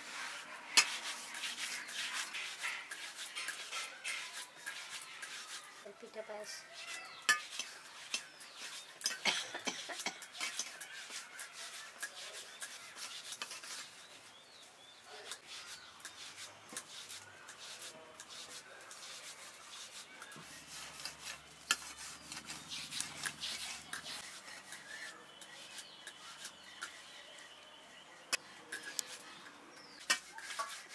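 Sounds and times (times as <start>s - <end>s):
fingers rolling dough: 6.6s - 30.9s.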